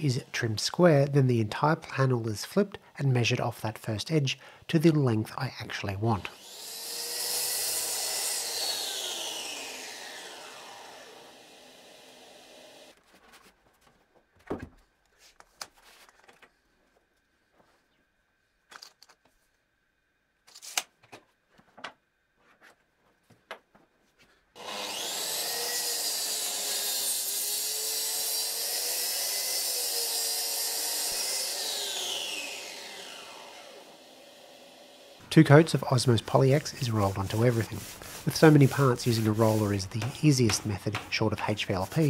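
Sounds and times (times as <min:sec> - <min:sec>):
track saw cutting: 0:06.0 - 0:13.0, 0:24.6 - 0:42.0.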